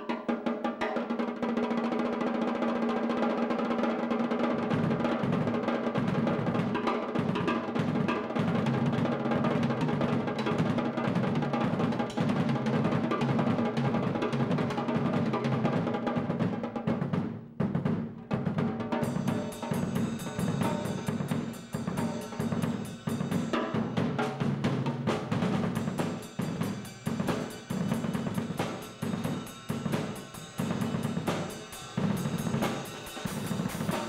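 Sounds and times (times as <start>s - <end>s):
drum rolls on snare and toms: 0.0s - 34.0s
rapid bass drum strokes: 4.5s - 34.0s
cymbals ringing: 19.0s - 24.0s, 25.6s - 34.0s.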